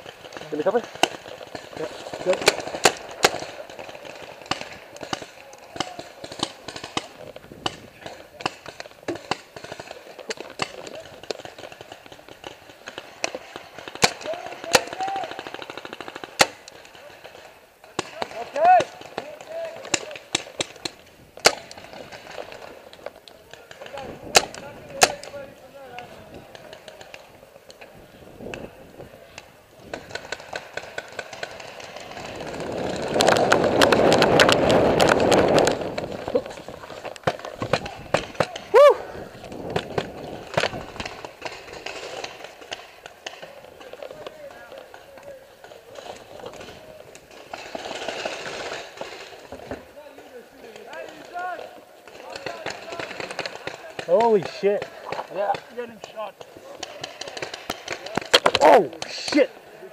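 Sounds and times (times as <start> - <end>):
loud close gun cracks: 0.0 - 28.7, 29.3 - 59.6
paintball markers firing: 0.0 - 59.6.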